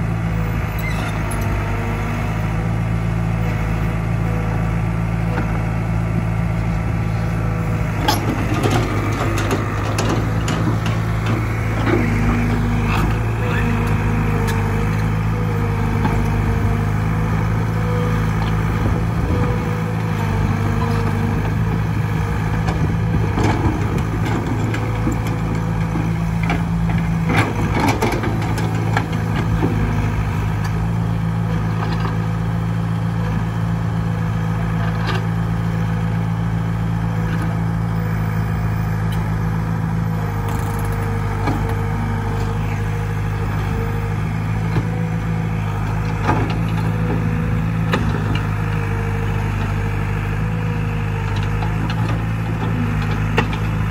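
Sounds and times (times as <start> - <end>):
diesel engine idling: 0.0 - 53.9
metallic knocks and clanks: 8.0 - 12.0.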